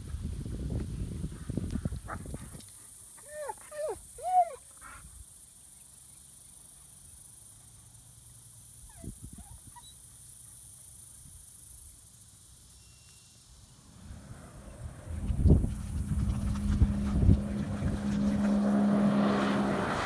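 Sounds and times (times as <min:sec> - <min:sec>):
steady high hiss: 0:10.0 - 0:15.6
jet ski engine rumbling: 0:13.9 - 0:20.0.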